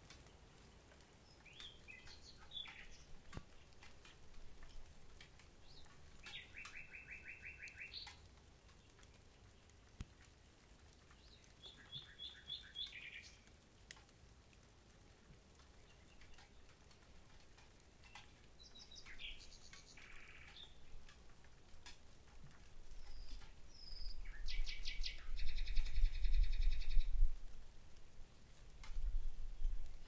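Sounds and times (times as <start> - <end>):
nightingale singing: 1.2 - 3.8, 5.6 - 8.2, 11.2 - 13.5, 18.0 - 21.1, 22.9 - 27.3.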